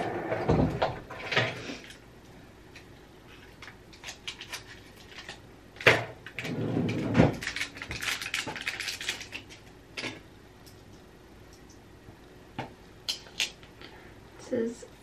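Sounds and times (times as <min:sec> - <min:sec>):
wrapper crinkling: 0:03.4 - 0:05.4, 0:07.4 - 0:09.7
wrapper tearing: 0:07.4 - 0:09.6.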